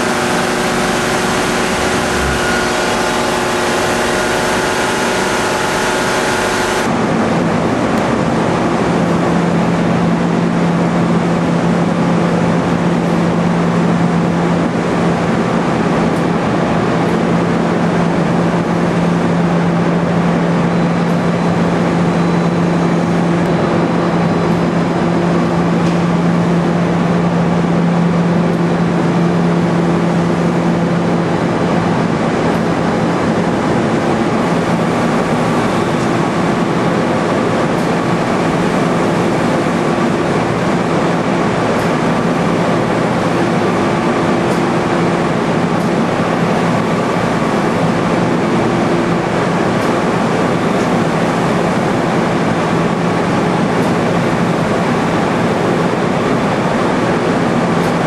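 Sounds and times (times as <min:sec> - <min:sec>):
low hum: 0:00.0 - 0:08.0
machinery rushing noise: 0:00.0 - 0:58.0.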